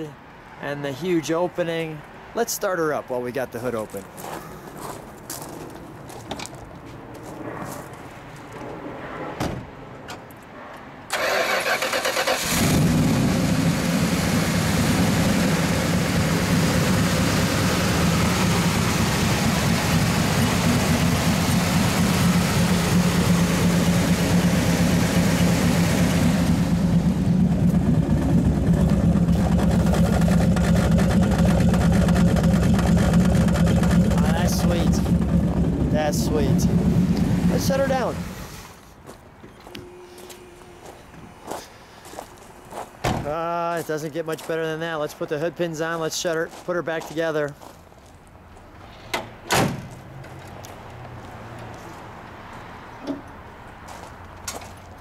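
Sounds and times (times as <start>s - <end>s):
engine starter cranking: 11.1s - 13.0s
engine idling: 11.2s - 38.8s.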